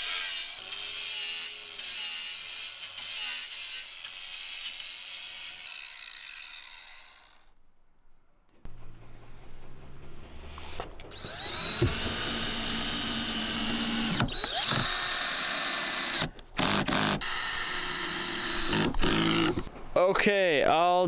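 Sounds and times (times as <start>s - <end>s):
cordless drill boring into steel: 11.1s - 19.7s.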